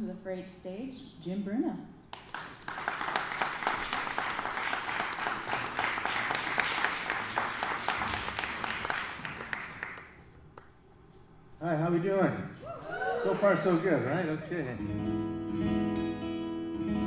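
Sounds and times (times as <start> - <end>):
audience applauding: 2.1 - 10.3.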